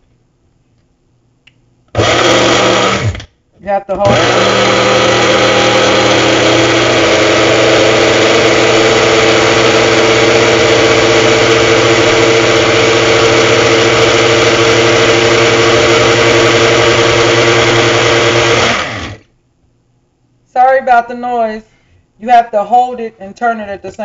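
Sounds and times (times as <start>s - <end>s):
blender motor running: 2.0s - 3.3s, 4.0s - 19.2s.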